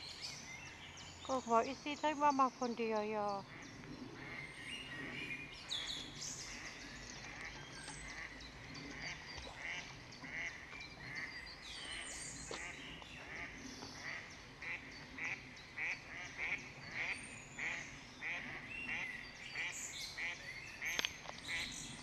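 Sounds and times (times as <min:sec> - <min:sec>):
ducks quacking: 0:03.2 - 0:20.9.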